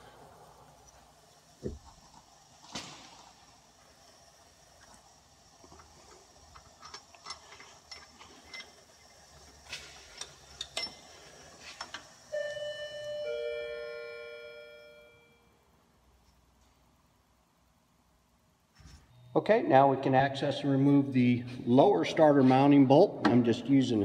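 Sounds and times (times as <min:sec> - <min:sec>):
ratchet clicking and clinking: 0:06.5 - 0:08.8, 0:10.1 - 0:11.1
ringing tones: 0:12.3 - 0:15.5.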